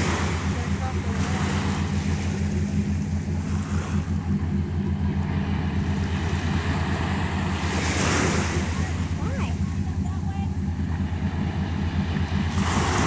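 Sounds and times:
boat engine rumbling: 0:00.0 - 0:13.0
small waves washing on beach: 0:00.0 - 0:13.0.

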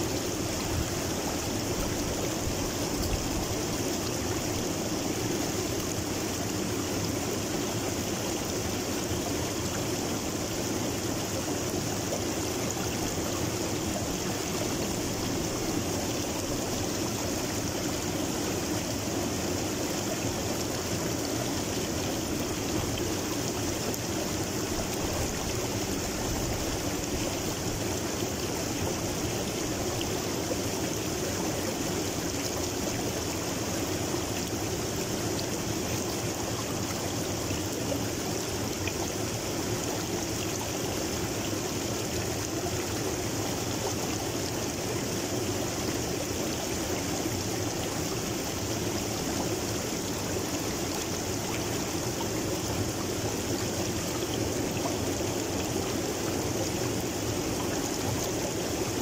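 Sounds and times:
river water flowing over rocks: 0:00.0 - 0:59.0.

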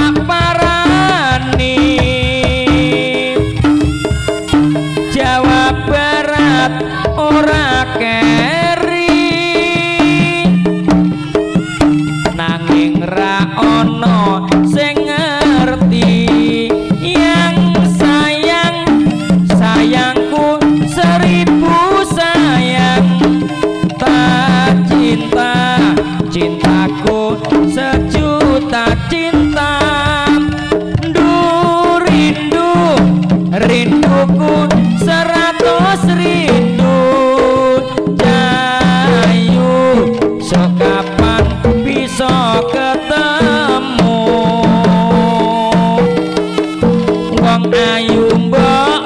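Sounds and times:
hand drums: 0:00.0 - 0:49.0
wavering high melody: 0:03.5 - 0:07.2.

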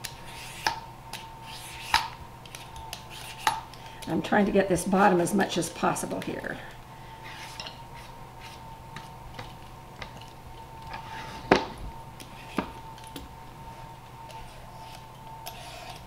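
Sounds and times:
vegetable peeler scraping squash: 0:00.0 - 0:00.8, 0:01.4 - 0:03.7, 0:07.2 - 0:08.6, 0:14.3 - 0:16.0.

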